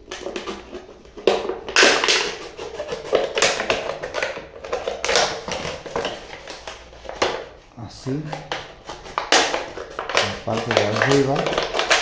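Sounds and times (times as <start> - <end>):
plastic crackling: 0.0 - 12.0
scissors snipping plastic: 8.3 - 12.0.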